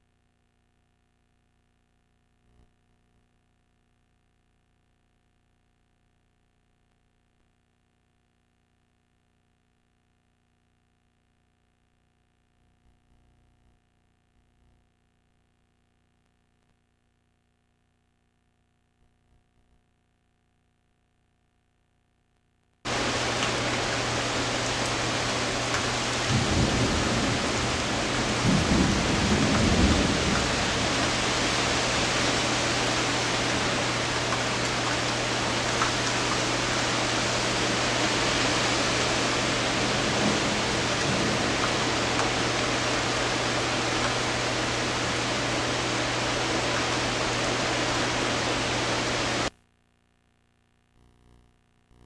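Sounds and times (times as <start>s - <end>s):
low steady hum: 0.0s - 52.0s
thunder rumbling: 22.9s - 36.0s, 37.3s - 45.3s
rain hissing: 22.9s - 49.5s.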